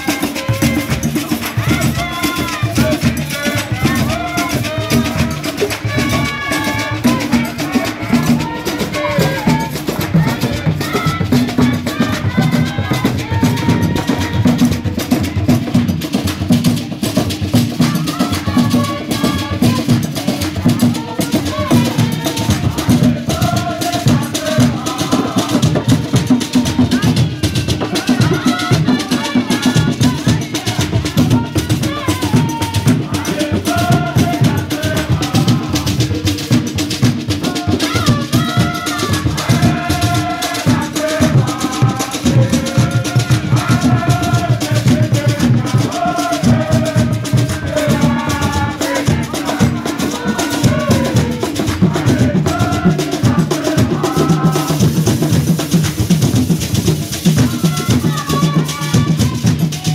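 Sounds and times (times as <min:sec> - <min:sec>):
hand drums and percussion: 0:00.0 - 0:59.9
voices singing: 0:00.0 - 0:59.9.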